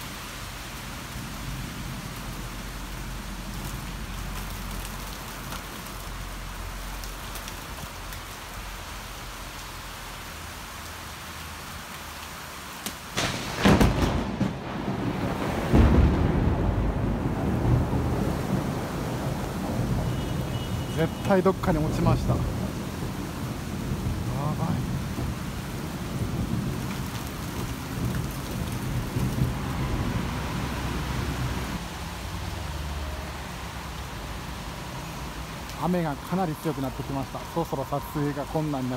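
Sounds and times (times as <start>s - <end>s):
steady rain falling: 0.0s - 38.9s
thunder rumbling: 13.1s - 31.8s
loud thunder clap: 13.2s - 20.2s.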